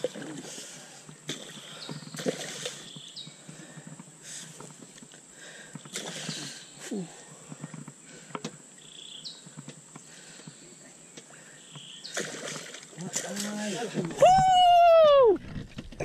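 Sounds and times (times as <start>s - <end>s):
fish splashing at water surface: 12.1s - 13.6s.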